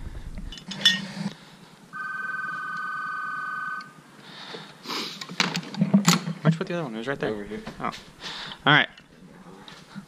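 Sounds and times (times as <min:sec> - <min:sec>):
steady two-pitch electronic tone: 0:01.9 - 0:04.0.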